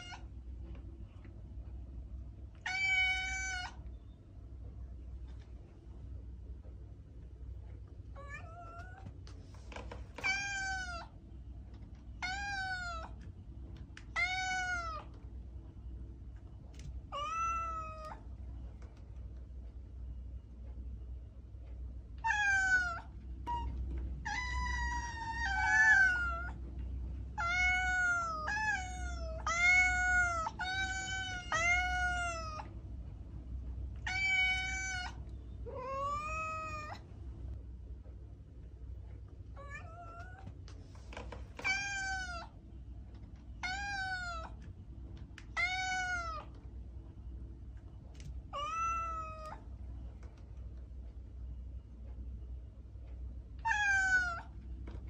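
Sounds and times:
cat meowing: 0.0s - 0.3s, 2.6s - 3.8s, 8.2s - 9.1s, 10.2s - 11.2s, 12.2s - 13.2s, 14.0s - 15.2s, 17.1s - 18.2s, 22.2s - 26.6s, 27.4s - 32.7s, 34.0s - 37.0s, 39.6s - 40.5s, 41.6s - 42.6s, 43.6s - 44.6s, 45.5s - 46.6s, 48.5s - 49.6s, 53.6s - 54.6s
low steady hum: 0.0s - 55.0s.

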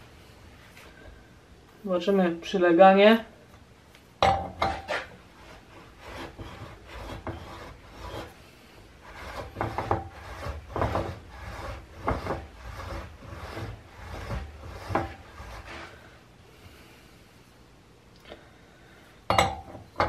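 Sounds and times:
metal-on-metal scraping: 4.2s - 8.4s, 9.0s - 16.0s.

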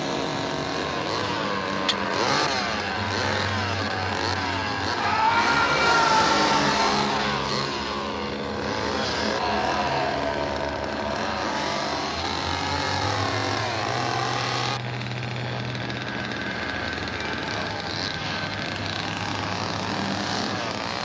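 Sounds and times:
chainsaw engine revving: 0.0s - 21.0s.

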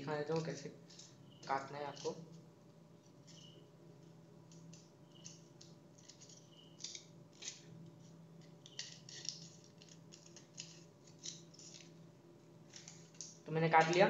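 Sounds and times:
scissors snipping foil: 0.3s - 2.4s, 4.5s - 12.0s.

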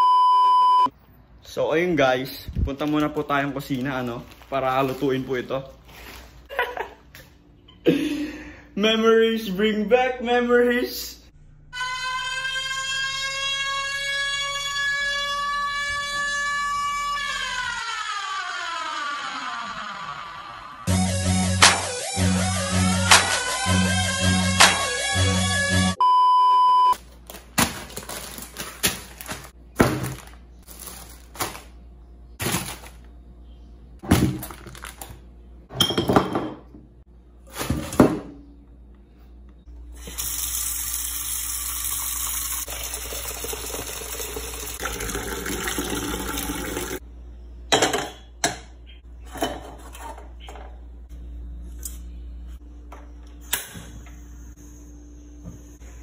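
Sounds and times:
short beep tone: 0.0s - 0.9s, 26.0s - 27.0s
packets rustling: 2.8s - 6.5s, 27.1s - 31.8s
tap water running into pot: 40.1s - 47.0s.

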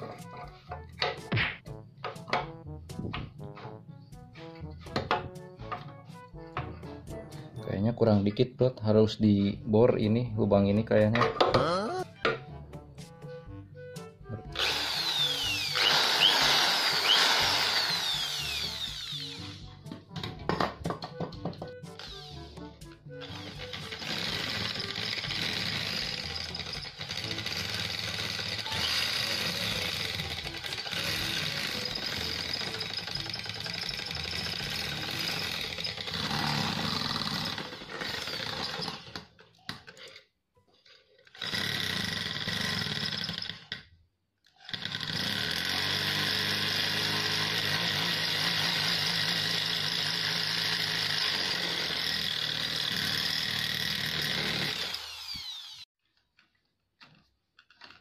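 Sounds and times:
electric drill boring through metal: 14.5s - 19.7s, 21.9s - 22.5s, 23.2s - 39.3s, 41.3s - 43.8s, 44.6s - 55.9s.

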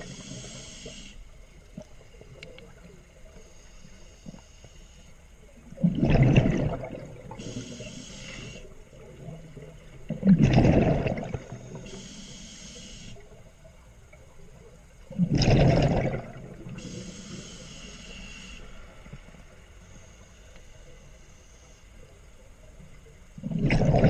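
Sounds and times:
regulator inhalation hiss: 0.0s - 1.3s, 7.4s - 8.8s, 11.6s - 13.2s, 16.7s - 19.0s
regulator exhalation bubbles: 5.8s - 7.9s, 10.1s - 11.5s, 15.1s - 17.0s, 23.4s - 24.0s.

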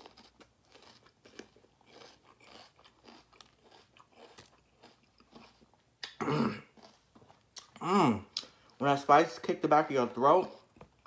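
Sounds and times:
person chewing and smacking: 0.0s - 8.9s, 10.0s - 11.0s.

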